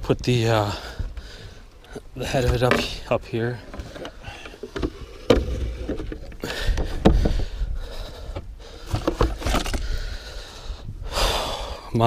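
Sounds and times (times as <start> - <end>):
knocks and thumps on boat deck: 2.3 - 7.5, 8.3 - 9.8.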